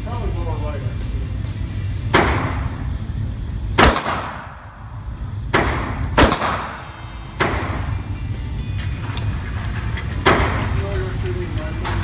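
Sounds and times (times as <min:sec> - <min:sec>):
pistol shots with echo: 0:03.8 - 0:04.8, 0:05.5 - 0:07.9.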